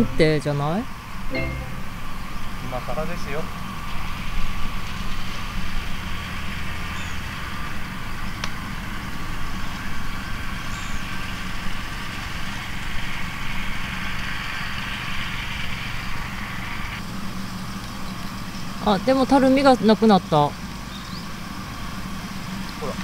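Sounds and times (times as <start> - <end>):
even hiss: 0.0 - 21.6
low continuous rumble: 0.0 - 23.0.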